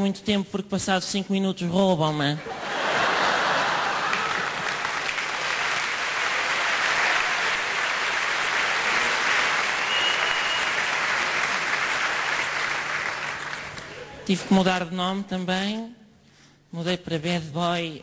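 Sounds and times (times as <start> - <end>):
audience applauding: 2.8 - 14.2.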